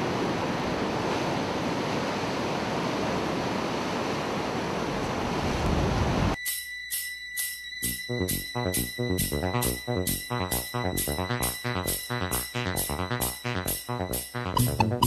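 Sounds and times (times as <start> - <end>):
ocean waves breaking: 0.0 - 6.3
music with bell-like strikes: 6.4 - 15.0.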